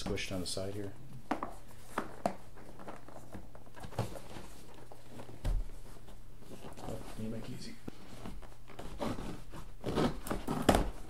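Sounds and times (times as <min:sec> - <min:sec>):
cardboard packaging handled: 0:08.0 - 0:11.0.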